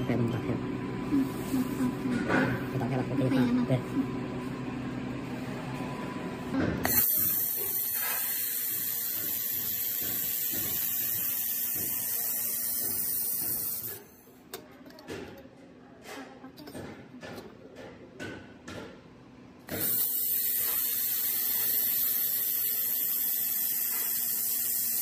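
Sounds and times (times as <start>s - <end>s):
laser welder hissing: 6.8s - 14.1s, 19.7s - 25.0s.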